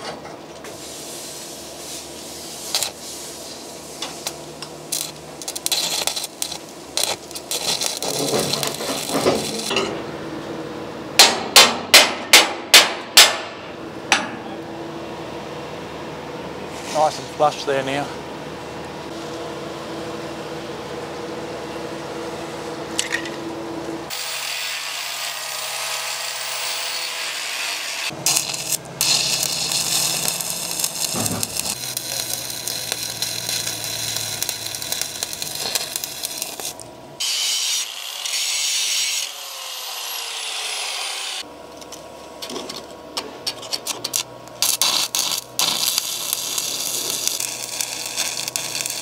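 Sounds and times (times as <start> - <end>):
arc welding crackling: 1.0 - 9.8, 24.1 - 42.9, 43.6 - 49.0.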